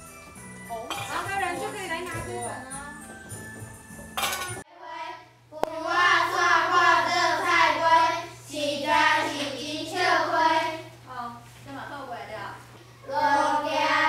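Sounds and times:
steady low hum: 0.8 - 14.0
girl reading aloud sing-song: 4.7 - 11.4, 13.0 - 14.0.

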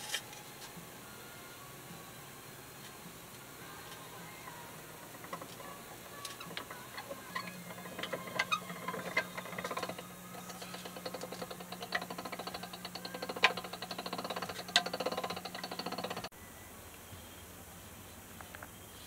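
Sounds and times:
low steady hum: 0.0 - 19.0
sausage stuffer gears clicking: 4.9 - 16.3.

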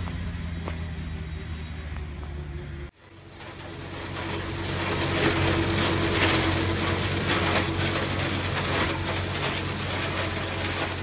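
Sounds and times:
tractor engine running: 0.0 - 11.0
sweeper tines rattling through branches: 3.0 - 11.0.

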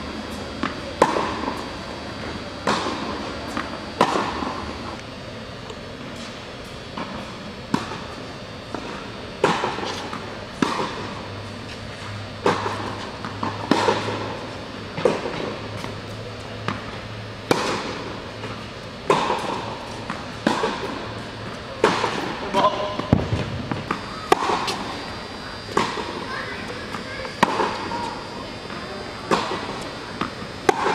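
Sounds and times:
tennis ball struck by rackets: 19.1 - 21.0, 23.0 - 24.8
tennis ball bouncing on court: 21.8 - 24.8.

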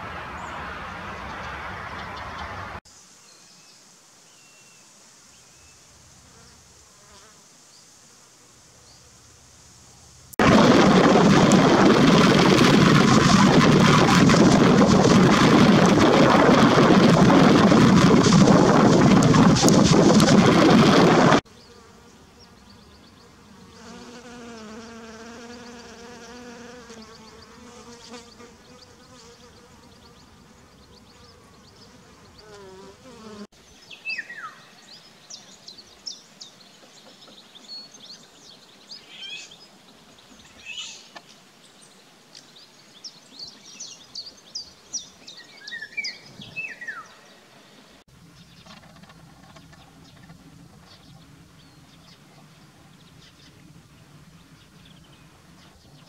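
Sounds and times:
heavy rain falling: 10.4 - 21.4
fly buzzing: 17.7 - 30.3, 31.1 - 33.5
bird calls and chirps: 33.6 - 47.4.

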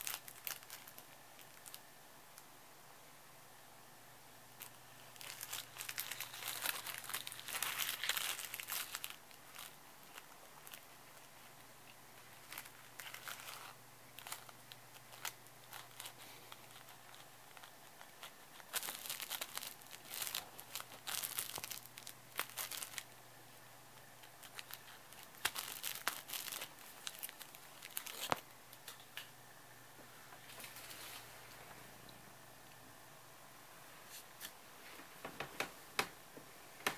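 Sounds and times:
cellophane crinkling: 0.0 - 1.9, 4.5 - 23.3, 24.0 - 29.3.

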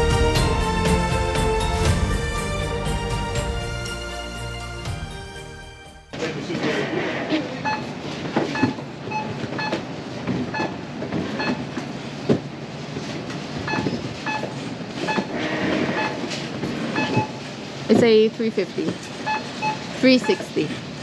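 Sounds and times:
barcode scanner beeps: 8.5 - 9.8, 10.5 - 10.8, 13.7 - 15.3, 16.9 - 17.4, 19.2 - 20.7.

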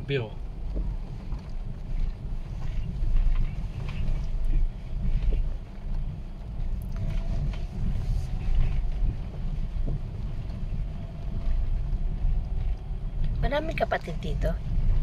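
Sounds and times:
car engine and road noise: 0.0 - 15.0
wind buffeting microphone: 0.0 - 15.0.

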